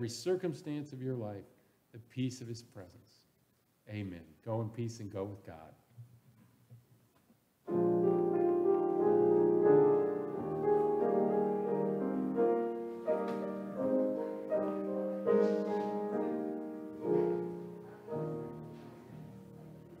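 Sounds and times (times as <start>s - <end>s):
slow piano chords: 7.7s - 20.0s.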